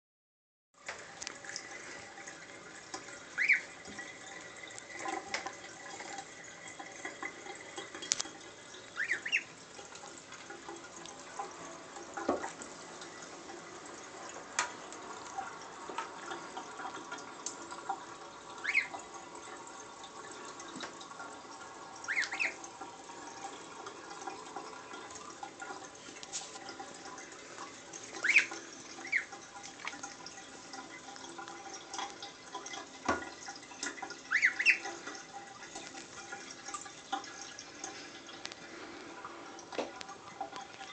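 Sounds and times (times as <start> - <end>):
water splashing in a bathtub: 0.8 - 40.9
gosling peeping: 3.3 - 3.8, 9.0 - 9.5, 18.6 - 19.0, 22.1 - 22.6, 28.2 - 29.4, 34.3 - 34.9.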